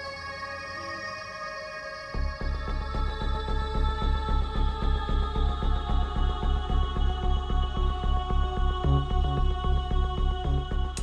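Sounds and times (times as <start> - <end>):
low pulsing bass: 2.2 - 11.0.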